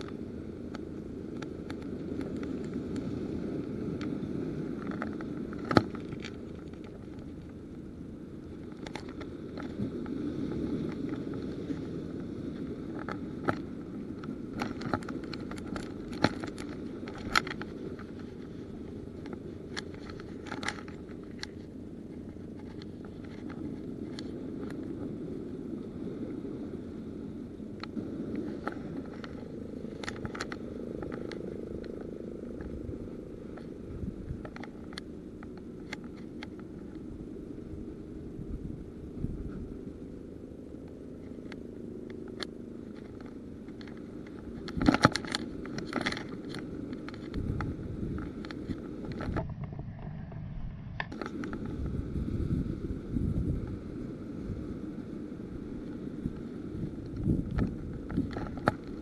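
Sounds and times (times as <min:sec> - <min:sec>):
steady low rumble: 0:00.0 - 0:59.0
hands handling fishing gear: 0:12.9 - 0:25.0, 0:41.4 - 0:47.6.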